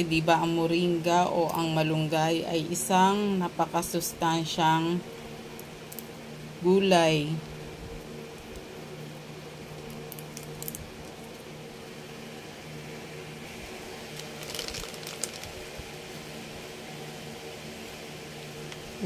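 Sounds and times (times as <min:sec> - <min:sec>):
steady low hum: 0:00.0 - 0:19.0
leaves rustling into bowl: 0:13.5 - 0:16.2.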